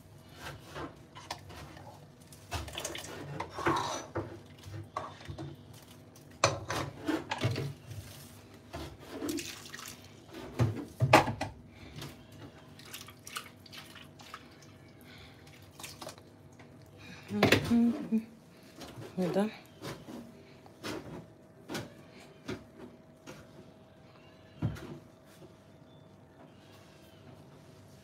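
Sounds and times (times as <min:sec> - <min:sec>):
metal spoon scraping pot: 0:03.3 - 0:04.2
liquid sloshing: 0:09.0 - 0:10.3, 0:12.7 - 0:16.7.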